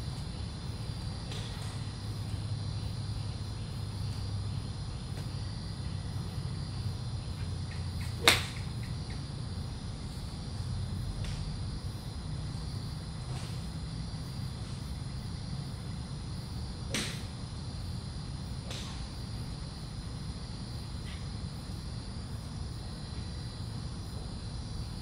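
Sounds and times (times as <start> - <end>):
steady low hum: 0.0 - 25.0
golf club striking ball: 8.0 - 9.2, 16.9 - 17.3.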